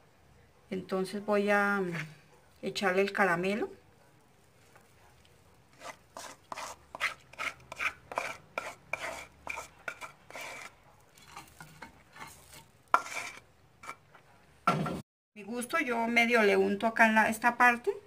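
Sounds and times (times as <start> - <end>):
wooden spoon scraping a pot: 1.7 - 2.3, 4.5 - 14.3.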